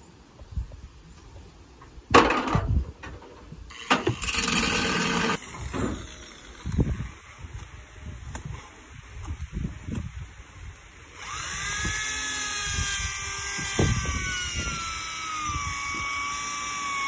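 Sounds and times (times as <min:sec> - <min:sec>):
electric drill running: 0:03.7 - 0:06.8, 0:11.1 - 0:17.0.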